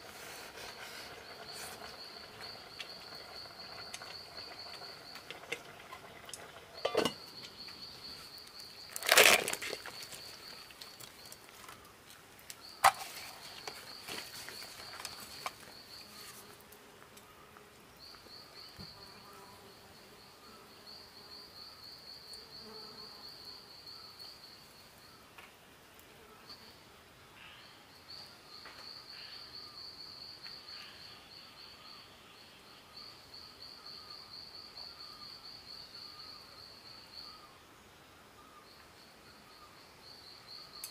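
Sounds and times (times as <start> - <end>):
insect chirring: 0.1 - 25.2, 38.4 - 40.9.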